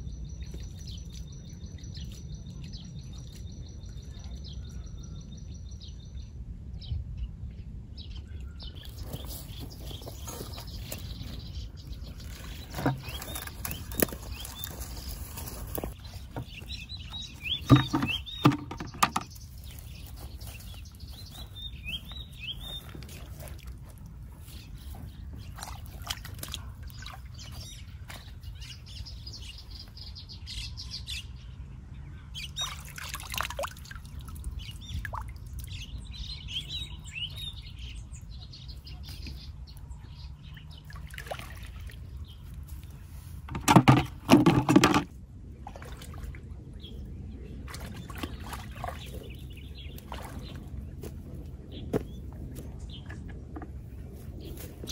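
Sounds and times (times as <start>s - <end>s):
wild birds chirping: 0.0s - 54.9s
water splashing and sloshing: 8.8s - 29.0s, 32.6s - 36.2s, 40.4s - 54.9s.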